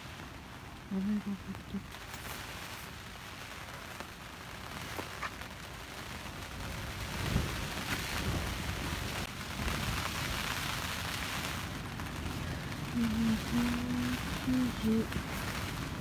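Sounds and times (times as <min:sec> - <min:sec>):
gusting wind: 0:00.0 - 0:16.0
heavy rain on tent: 0:00.0 - 0:16.0.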